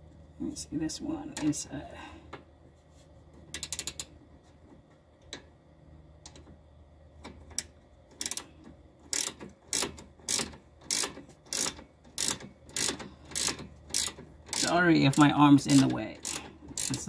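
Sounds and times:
ratcheting wrench clicking: 3.5s - 4.1s, 7.5s - 8.5s, 9.1s - 17.0s.

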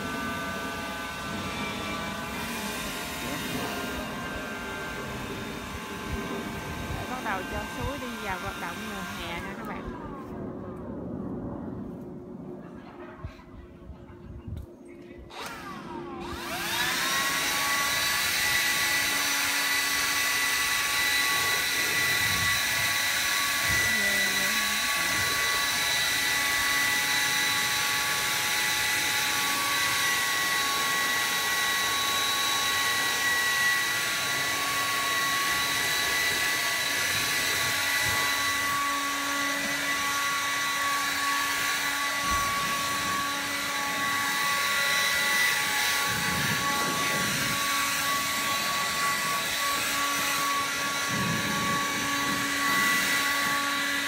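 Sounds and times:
leaf blower whine: 0.0s - 10.9s, 15.2s - 54.0s.

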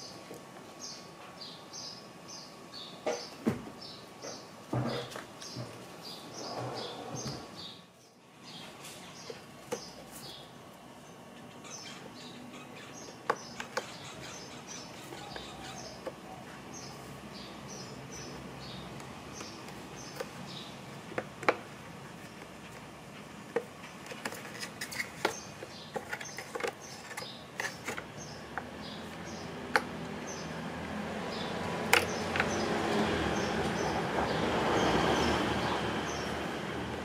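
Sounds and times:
small bird chirping: 0.8s - 20.8s
hard plastic clicks and taps: 29.7s - 29.9s.

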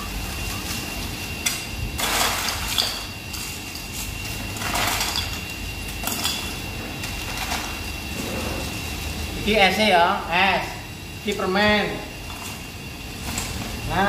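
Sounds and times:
faint high whine: 0.0s - 14.0s
rustling and scraping of plastic bag: 0.1s - 8.7s.

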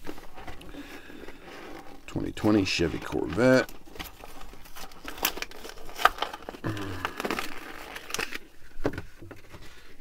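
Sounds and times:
plastic crinkling and crackling: 0.0s - 10.0s
sharp clicks and cracks: 2.1s - 8.5s.

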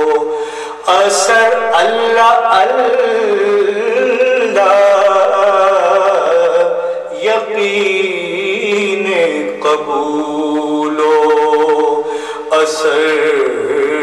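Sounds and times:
person chanting long wavering notes: 0.0s - 7.6s
steady low vocal drone: 0.0s - 14.0s.

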